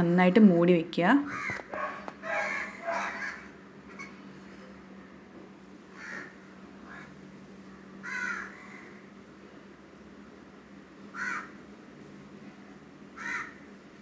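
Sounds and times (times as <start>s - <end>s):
faint low hum: 0.0s - 14.0s
crow cawing: 1.3s - 4.1s, 6.0s - 7.2s, 8.0s - 9.1s, 11.1s - 11.6s, 13.2s - 13.6s.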